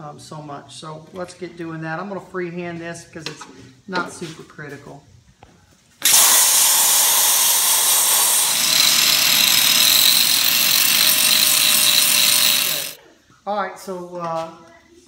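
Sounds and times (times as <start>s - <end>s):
angle grinder grinding steel: 6.0s - 13.0s.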